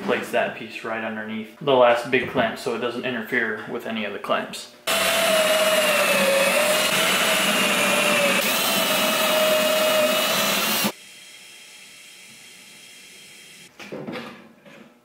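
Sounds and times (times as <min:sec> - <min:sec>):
cordless drill whining: 0:04.9 - 0:11.0.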